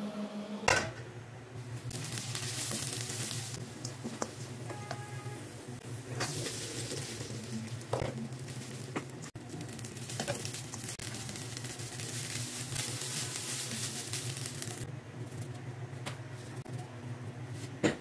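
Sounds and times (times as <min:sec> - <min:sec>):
rice sizzling in oil: 0:01.6 - 0:15.6.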